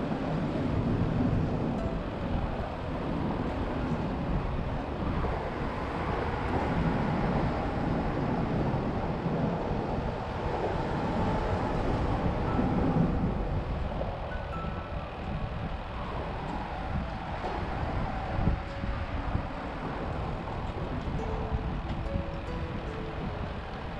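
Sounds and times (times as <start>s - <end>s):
wind buffeting microphone: 0.0s - 23.9s.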